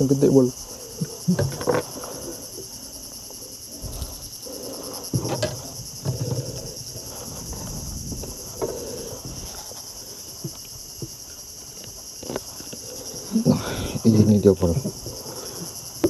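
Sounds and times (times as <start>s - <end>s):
insects chirring: 0.0s - 16.0s
knocks and thumps on wooden deck: 5.1s - 6.8s.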